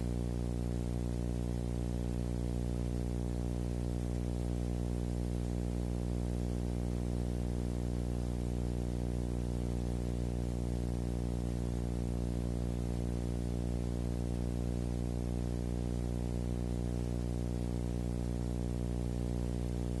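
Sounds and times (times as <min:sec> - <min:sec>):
low electronic hum: 0:00.0 - 0:20.0.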